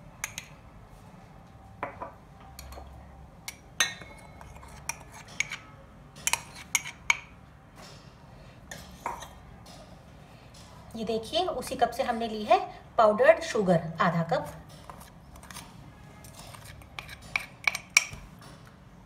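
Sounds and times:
metal spoon clinking on ceramic: 0:03.5 - 0:07.3, 0:16.3 - 0:18.2.

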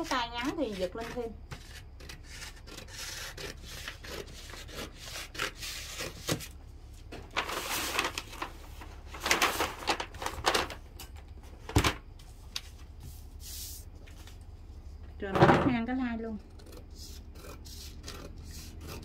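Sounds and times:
paper sheets rustling: 0:07.2 - 0:10.8
scissors snipping paper: 0:16.4 - 0:19.0.

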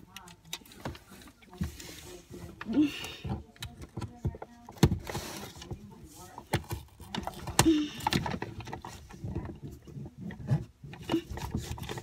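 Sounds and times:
lantern being handled: 0:00.0 - 0:12.0.

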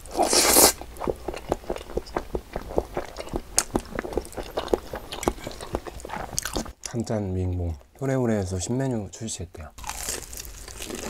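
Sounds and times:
wet chewing sounds: 0:00.1 - 0:07.0.

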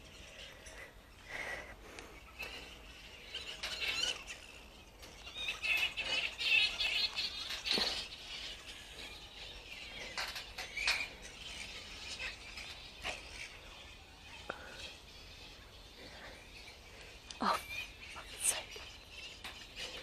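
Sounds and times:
birds chirping and chattering: 0:00.0 - 0:20.0.

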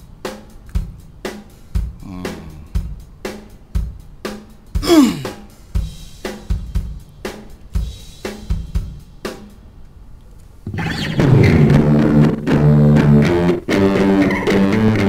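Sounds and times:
drum kit with delay echoes: 0:00.0 - 0:09.7
music with guitar-like tones: 0:10.7 - 0:15.0.

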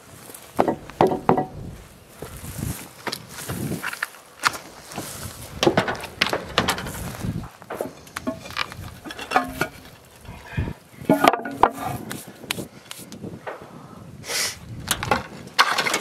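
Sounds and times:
knocks and scrapes climbing down stairs: 0:00.4 - 0:03.9, 0:04.9 - 0:12.2.

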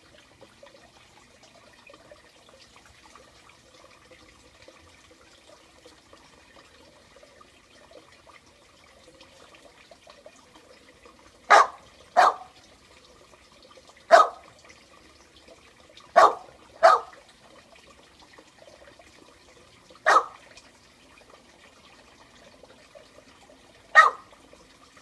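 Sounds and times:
dog barking: 0:11.5 - 0:12.5, 0:14.1 - 0:14.4, 0:16.2 - 0:17.2, 0:20.0 - 0:20.4, 0:23.9 - 0:24.2.

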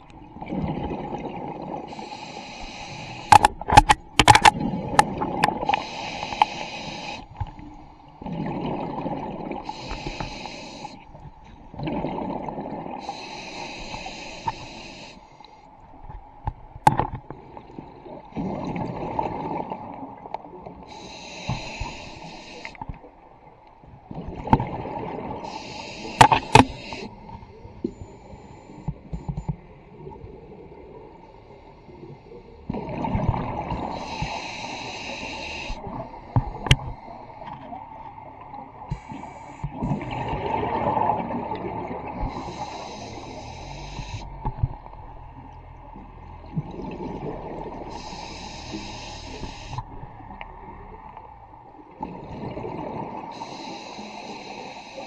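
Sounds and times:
regulator breathing hiss: 0:01.9 - 0:03.6, 0:05.7 - 0:07.4, 0:09.6 - 0:11.1, 0:13.0 - 0:15.7, 0:20.9 - 0:22.8, 0:25.4 - 0:27.3, 0:33.9 - 0:37.4, 0:38.9 - 0:39.7, 0:42.2 - 0:44.4, 0:47.8 - 0:49.9, 0:53.3 - 0:55.0.

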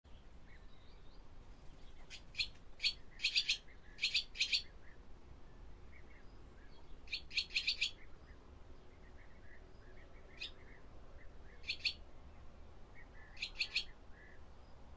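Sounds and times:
swallow chirping: 0:01.9 - 0:04.7, 0:07.1 - 0:08.1, 0:08.9 - 0:12.0, 0:13.0 - 0:14.4.

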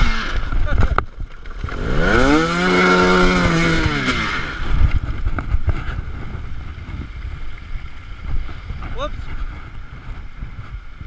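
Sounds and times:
two-stroke engine revving: 0:00.0 - 0:06.4.

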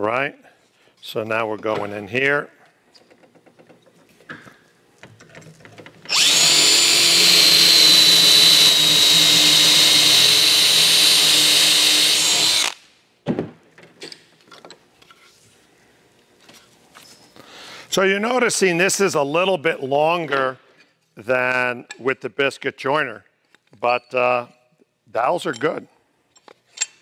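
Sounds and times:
cordless drill whining: 0:06.1 - 0:12.8.

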